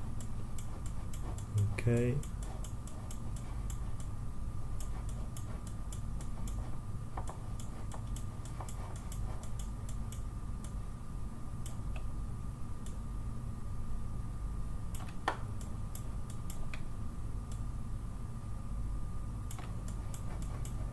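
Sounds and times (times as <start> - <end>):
faint steady whine: 0.0 - 20.9
low electrical hum: 0.0 - 20.9
computer mouse clicking: 0.2 - 1.6, 2.2 - 4.1, 4.8 - 10.8, 15.0 - 16.8, 19.5 - 20.9.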